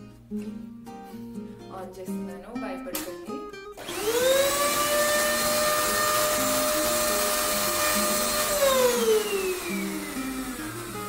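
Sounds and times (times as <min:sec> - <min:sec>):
vacuum cleaner motor whining: 0:03.8 - 0:11.0.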